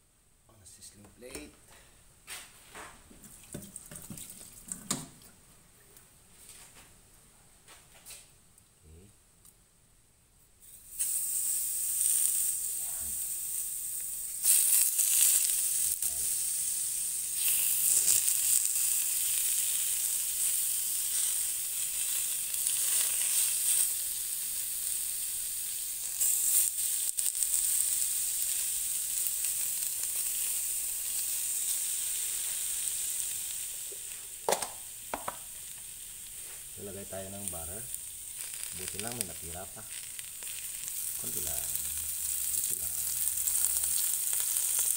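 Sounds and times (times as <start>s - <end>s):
sizzling hiss: 10.6s - 44.9s.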